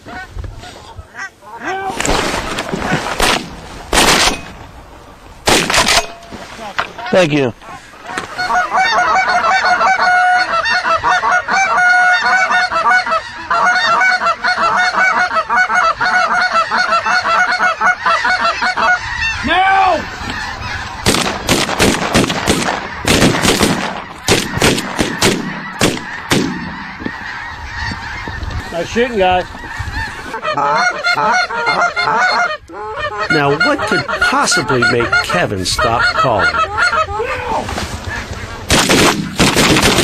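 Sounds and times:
goose honking: 5.8 - 40.0.

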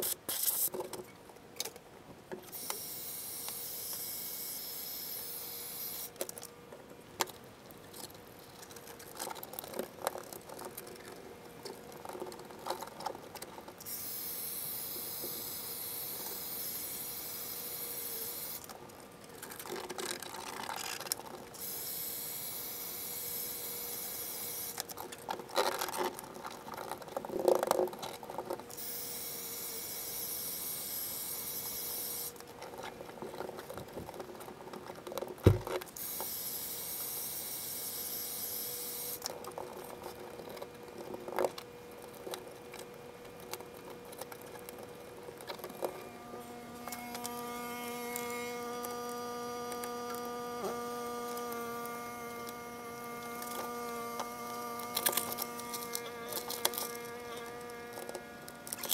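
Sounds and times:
heat gun blowing: 2.5 - 6.2, 13.9 - 18.7, 21.6 - 24.8, 28.8 - 32.4, 35.5 - 39.2, 46.0 - 58.9
sharp thump: 35.5 - 35.7
foil mat crinkling: 39.2 - 58.9.

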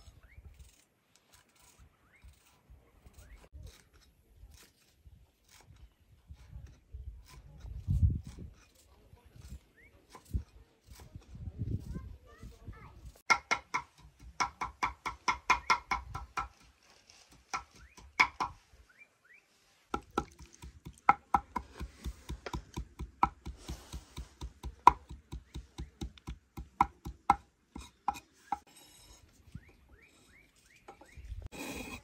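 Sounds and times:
knife chopping on wooden board: 17.4 - 18.6, 19.9 - 28.6.

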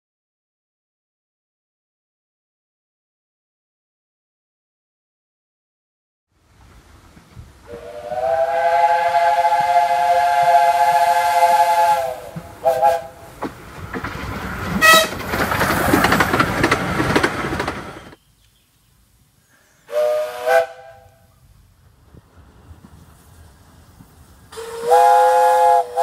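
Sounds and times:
steam locomotive chime whistle: 7.7 - 13.2, 14.8 - 15.1, 19.9 - 21.2, 24.5 - 26.0
train wheels clattering on rails: 12.2 - 18.2.

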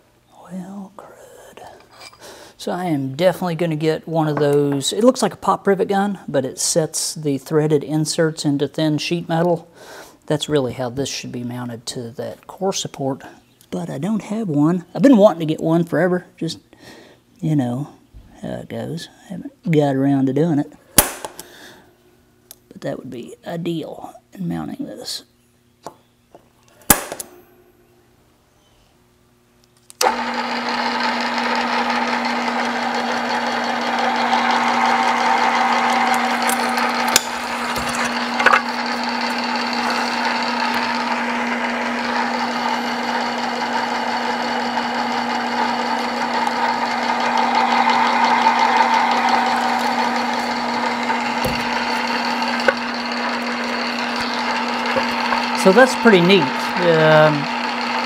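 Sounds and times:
drill press drilling sheet metal: 30.0 - 58.0.

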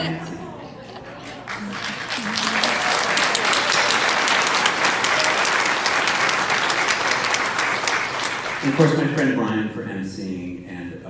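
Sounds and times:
audience applauding: 1.0 - 9.6.

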